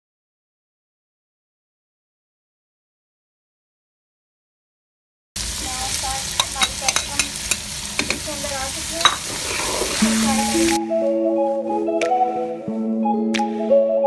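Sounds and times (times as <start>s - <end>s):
vegetables sizzling in a pan: 5.4s - 10.8s
spatula scraping a pan: 9.0s - 10.6s
background music: 9.9s - 14.0s.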